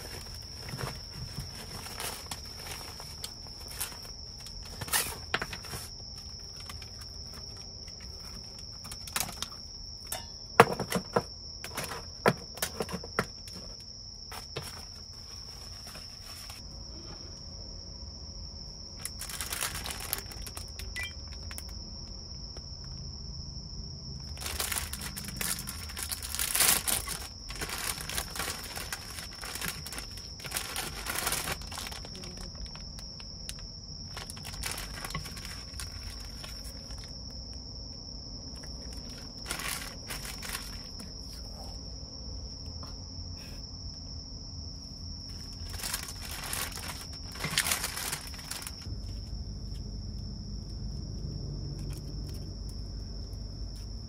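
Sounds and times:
plastic packets crinkling: 0.0s - 10.2s, 19.0s - 21.8s, 24.2s - 37.4s, 38.6s - 41.2s, 45.3s - 48.9s
high insect trill: 0.0s - 54.0s.

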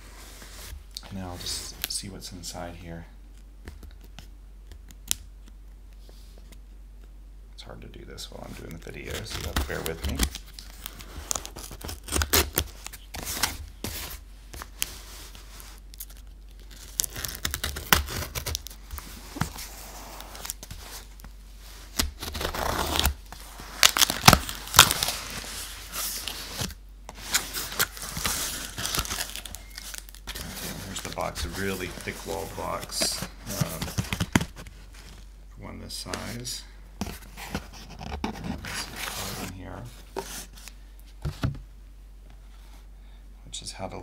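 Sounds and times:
packing tape slit and torn: 9.0s - 13.5s, 15.9s - 18.8s, 21.9s - 25.4s
cardboard flaps rustling: 16.6s - 35.3s, 37.0s - 41.6s.

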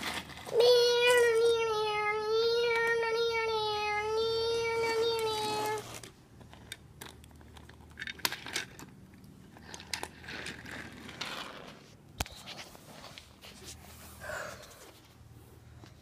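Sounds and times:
toy cars clicking on wooden floor: 0.0s - 1.7s, 4.6s - 11.9s.

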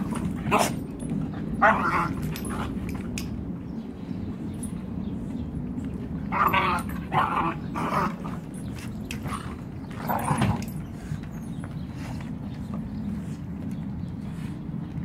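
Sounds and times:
dogs growling low: 6.2s - 11.4s.

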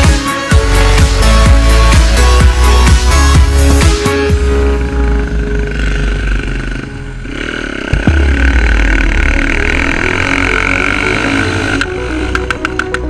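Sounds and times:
quad bike engine revving: 0.0s - 13.0s.

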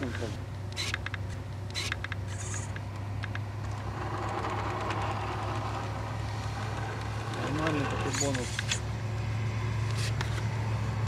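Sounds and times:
toy motor and gearbox whirring: 0.0s - 8.9s, 9.8s - 10.5s
steady low hum: 0.0s - 11.0s
sharp clicks: 0.5s - 5.0s.

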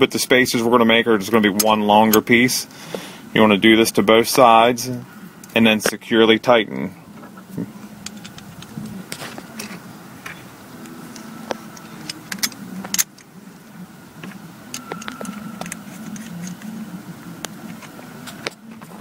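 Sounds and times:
low background noise: 0.0s - 19.0s
small metal parts clinking: 8.0s - 8.7s.

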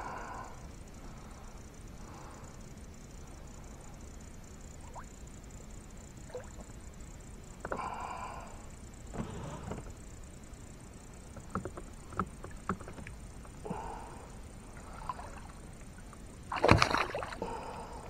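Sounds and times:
water splashing at boat side: 16.5s - 17.6s.

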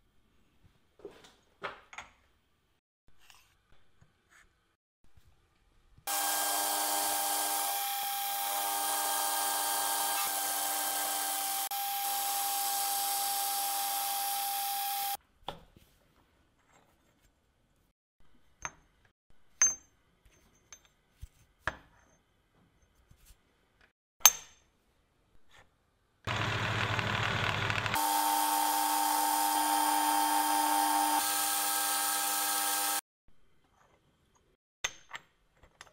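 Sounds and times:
milling machine whine: 6.1s - 15.2s, 26.3s - 33.0s.

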